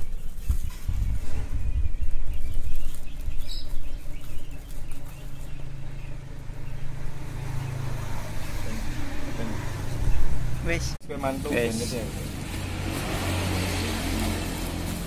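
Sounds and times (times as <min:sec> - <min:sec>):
plastic wrapping tearing and rustling: 0:00.0 - 0:06.1, 0:11.4 - 0:15.0
vehicle engine humming: 0:03.9 - 0:15.0.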